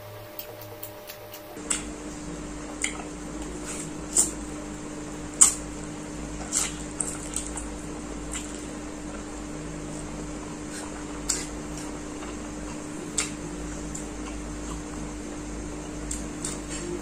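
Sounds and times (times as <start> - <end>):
faint steady hum: 0.0 - 17.0
person slurping noodles: 6.4 - 7.7.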